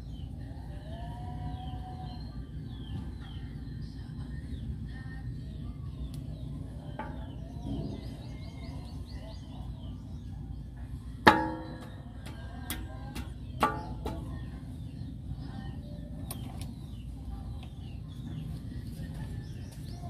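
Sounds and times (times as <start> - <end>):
low rumble: 3.8 - 20.0
ringing metal clang: 11.3 - 12.8.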